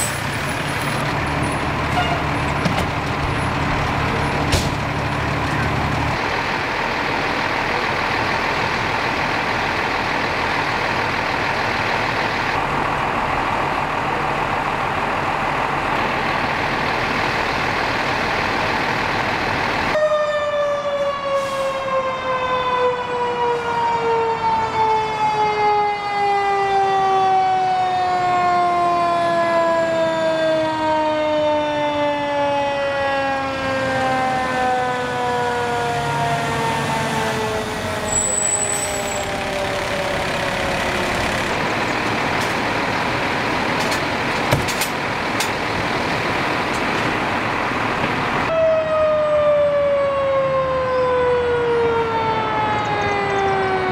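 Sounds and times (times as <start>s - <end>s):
engine and road noise: 0.0s - 53.9s
mechanical siren winding down: 19.9s - 42.2s, 48.5s - 53.9s.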